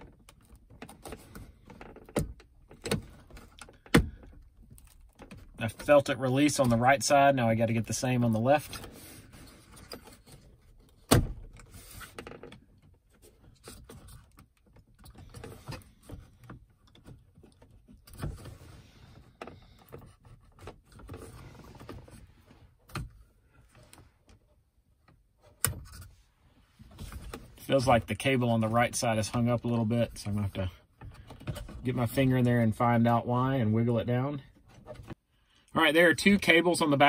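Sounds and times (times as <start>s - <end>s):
plastic clicks and creaks: 0.0s - 5.6s.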